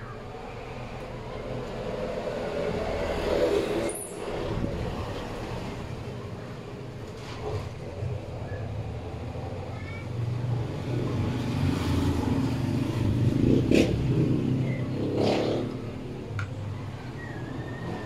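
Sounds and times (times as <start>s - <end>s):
vehicle engine passing: 10.2s - 18.0s.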